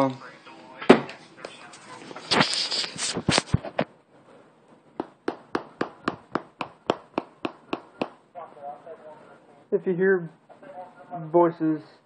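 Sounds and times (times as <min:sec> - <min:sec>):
sharp taps: 0:05.0 - 0:08.2.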